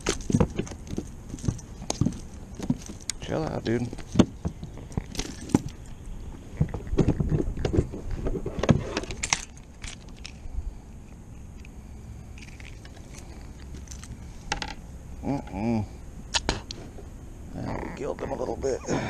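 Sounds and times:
fishing tackle jingling and clicking: 0.0 - 6.2, 9.1 - 10.5, 12.3 - 14.8.

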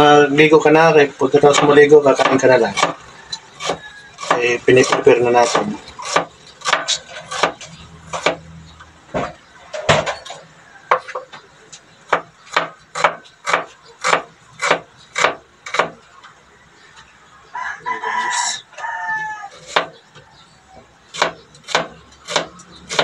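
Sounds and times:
knife chopping on wooden board: 1.5 - 3.0, 3.6 - 8.4, 12.1 - 16.0, 19.6 - 20.0, 21.2 - 23.0.

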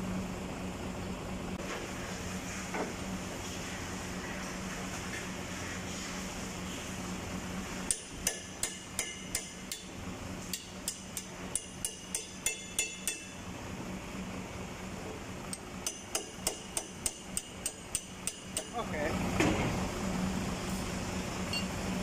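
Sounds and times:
hammer striking steel winch drum: 10.5 - 13.4.

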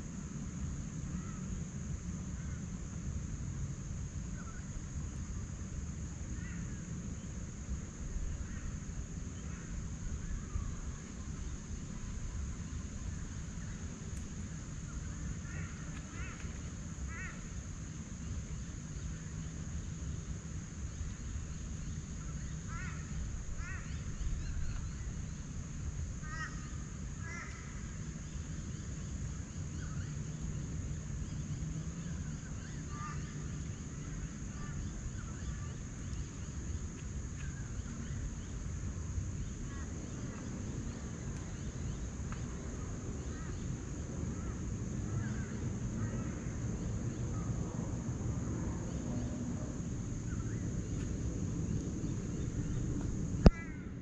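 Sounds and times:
forest bird calls: 20.8 - 25.5, 26.2 - 36.8, 50.3 - 54.0.

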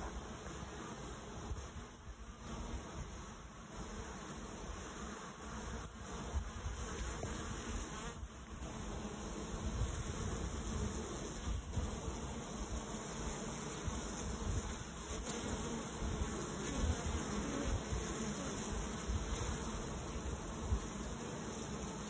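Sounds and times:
honeybees buzzing: 0.0 - 22.0.

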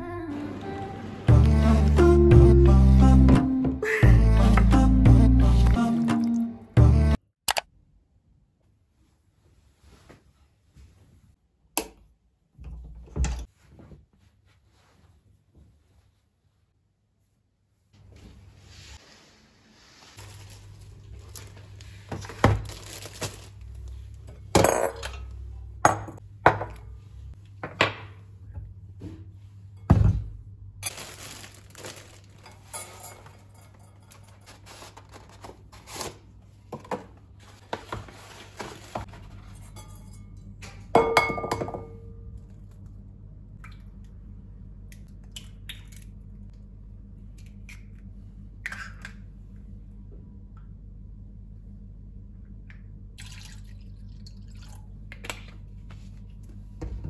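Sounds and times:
low hum: 38.8 - 57.0.

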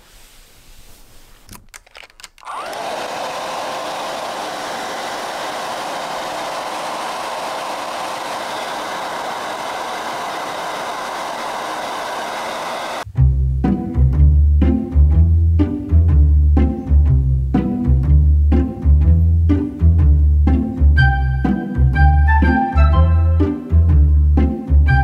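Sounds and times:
hair dryer blowing: 2.4 - 13.1.

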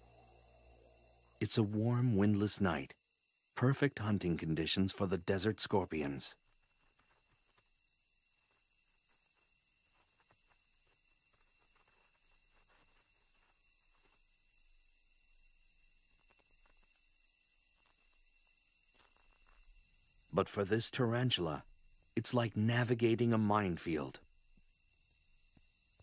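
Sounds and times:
crickets trilling: 0.0 - 26.0.

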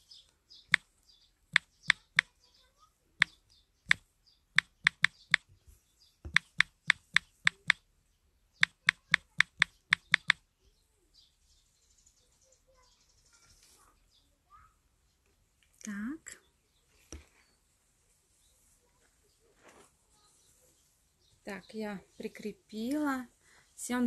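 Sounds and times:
taps on phone touchscreen: 4.6 - 5.5, 6.3 - 7.8, 8.6 - 10.4.

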